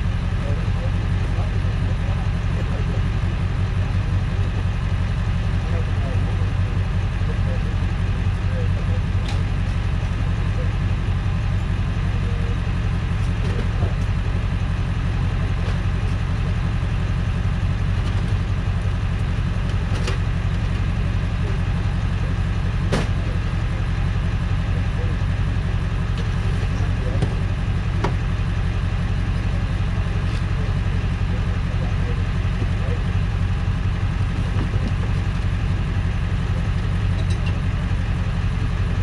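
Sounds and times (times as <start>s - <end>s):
truck engine idling: 0.0s - 39.0s.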